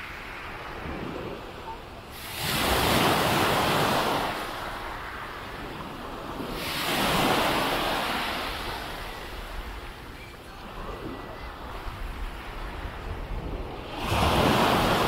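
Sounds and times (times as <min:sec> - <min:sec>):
sea waves breaking on beach: 0:00.0 - 0:15.0.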